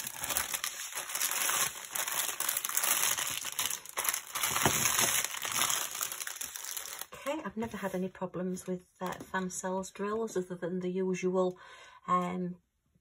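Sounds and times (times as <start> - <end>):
plastic bags crinkling: 0.0 - 7.9.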